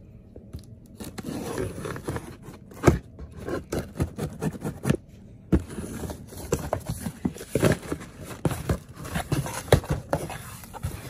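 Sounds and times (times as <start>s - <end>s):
scissors scraping cardboard box: 1.0s - 5.0s, 5.6s - 11.0s.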